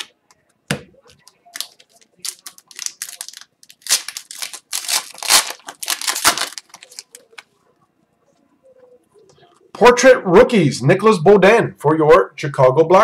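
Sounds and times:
foil wrapper crinkling and tearing: 1.5 - 7.5.

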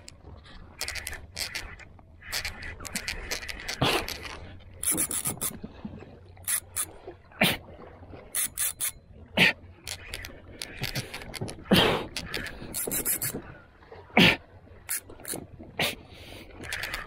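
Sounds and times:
fishing reel clicking: 0.8 - 5.6, 6.4 - 6.9, 8.3 - 9.0, 9.8 - 13.4, 14.9 - 15.4, 16.6 - 17.0.

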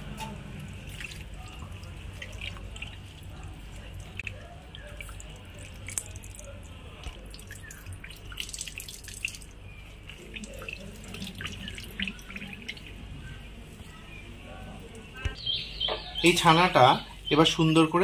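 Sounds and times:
water splashing and dripping: 0.0 - 15.4
water streaming into metal tray: 0.2 - 13.0.

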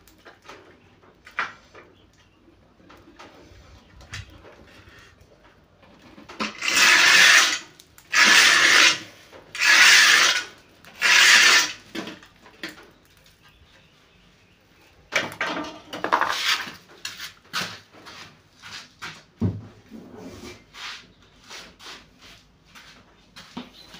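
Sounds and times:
scraping on rough concrete wall: 3.2 - 12.8, 15.2 - 18.8.

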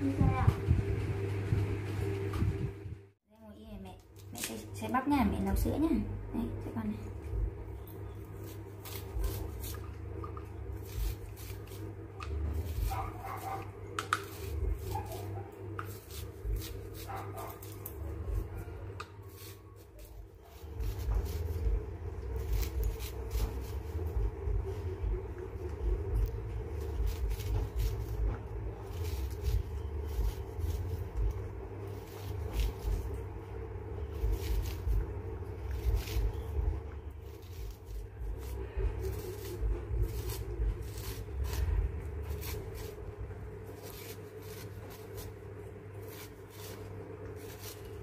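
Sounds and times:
steady low rumble: 0.0 - 48.0
knife scraping corn cob: 8.0 - 24.4, 26.2 - 33.2, 34.0 - 45.4, 46.0 - 48.0.

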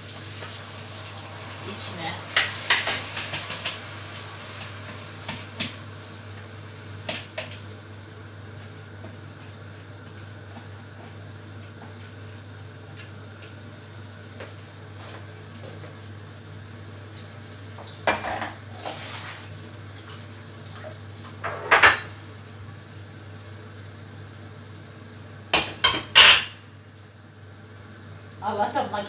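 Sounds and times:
dishes and utensils clattering: 2.3 - 3.8, 21.4 - 22.2, 25.6 - 26.6.

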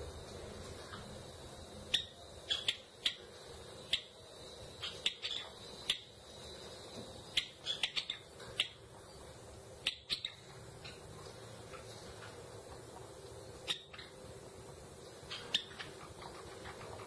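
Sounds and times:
sparrow chip calls: 1.9 - 3.2, 4.8 - 6.1, 7.3 - 8.8, 9.8 - 10.4, 13.6 - 14.2, 15.3 - 17.0.

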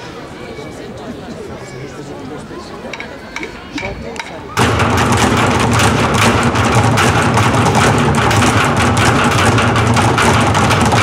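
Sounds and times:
drumming on metal and plastic drums: 3.8 - 11.0.

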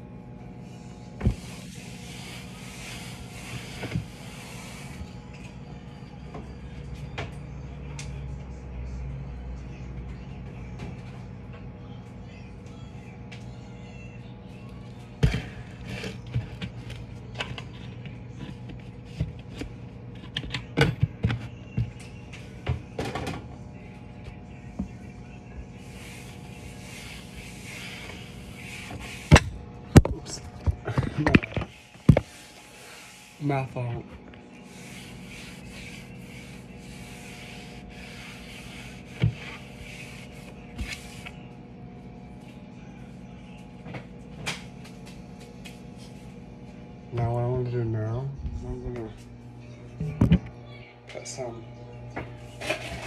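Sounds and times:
steady low hum: 0.0 - 53.0
paper towel rustling: 31.7 - 41.4
clothing rubbing on microphone: 34.4 - 41.4.

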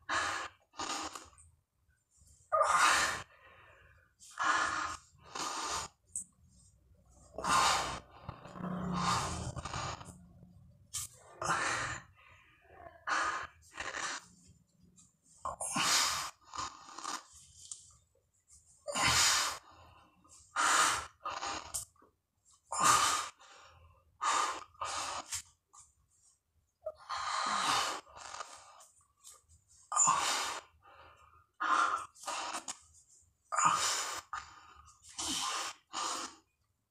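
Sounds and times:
man breathing hard: 7.3 - 10.2.

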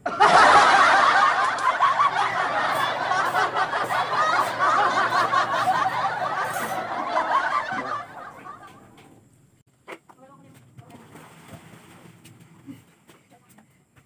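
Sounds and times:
group of people laughing: 0.0 - 9.2.

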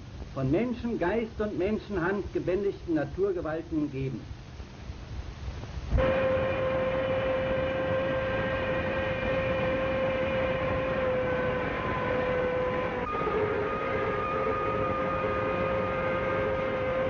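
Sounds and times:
steam locomotive whistle: 6.0 - 17.0
train noise: 6.0 - 17.0.

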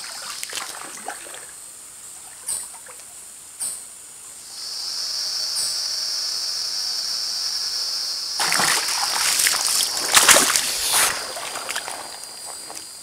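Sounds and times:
wading and splashing through water: 0.0 - 1.6, 8.4 - 13.0
high-pitched buzz: 4.4 - 8.4.

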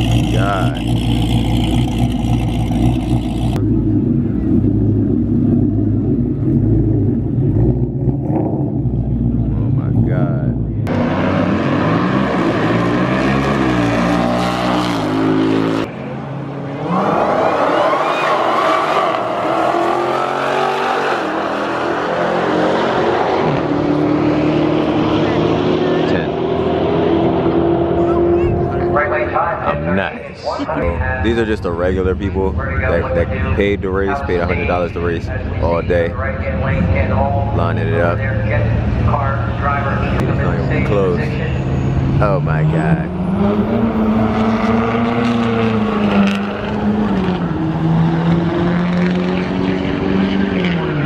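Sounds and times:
car exhaust rumble at idle: 0.0 - 10.8
car engine at full throttle: 0.0 - 51.0.

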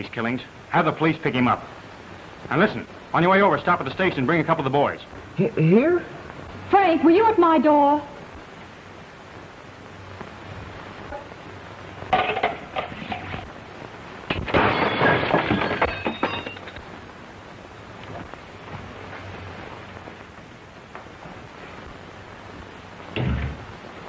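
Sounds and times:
crash with clinking and ringing: 14.3 - 16.8.

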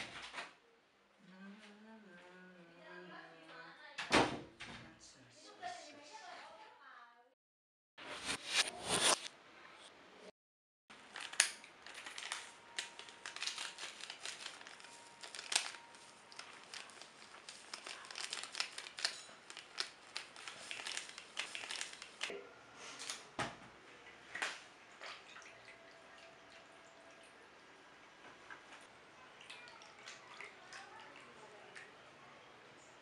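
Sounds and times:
plastic sachet crinkling: 11.0 - 22.3.

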